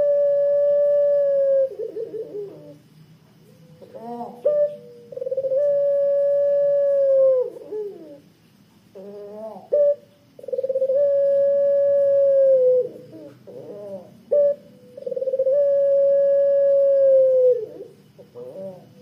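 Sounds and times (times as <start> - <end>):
dove cooing: 0.0 - 8.3, 8.9 - 19.0.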